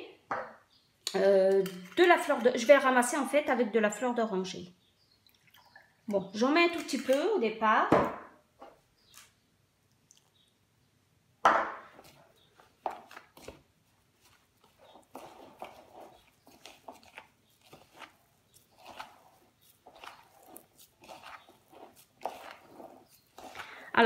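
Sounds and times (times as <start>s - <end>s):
hands kneading moist dough: 11.8s - 24.0s.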